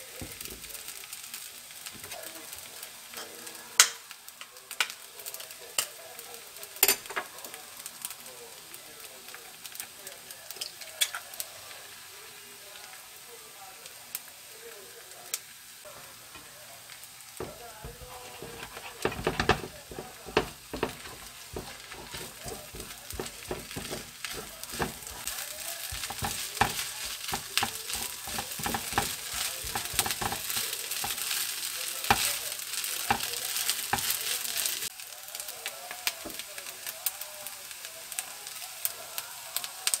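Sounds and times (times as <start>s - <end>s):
fried rice sizzling in a pan: 0.0s - 40.0s
spatula tapping and scraping pan: 17.4s - 32.4s, 33.0s - 34.3s.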